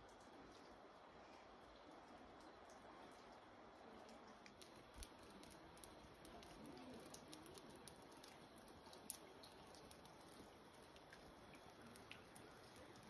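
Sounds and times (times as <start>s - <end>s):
light ticks: 4.0s - 13.0s.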